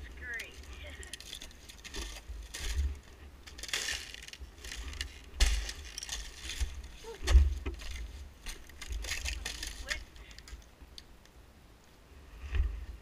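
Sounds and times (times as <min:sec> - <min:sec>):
thin ice crunching underfoot: 0:00.4 - 0:10.5.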